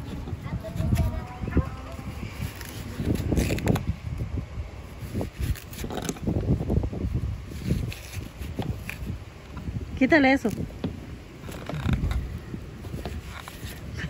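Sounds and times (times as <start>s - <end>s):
low rumbling: 0.0s - 14.0s
knife cutting watermelon rind: 2.3s - 3.9s, 5.1s - 6.8s, 7.5s - 9.2s.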